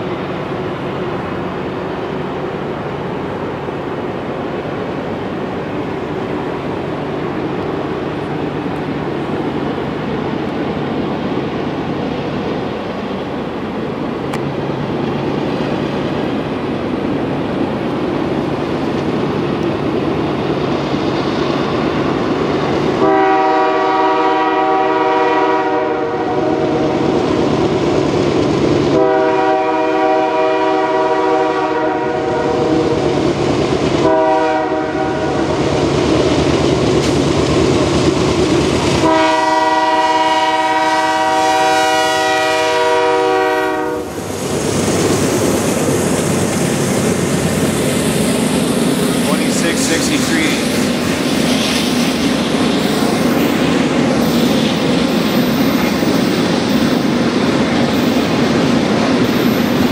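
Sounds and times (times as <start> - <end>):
train rumbling: 0.0 - 59.9
locomotive air horn blasts: 23.0 - 26.6, 28.9 - 32.6, 34.0 - 35.4, 39.0 - 44.1.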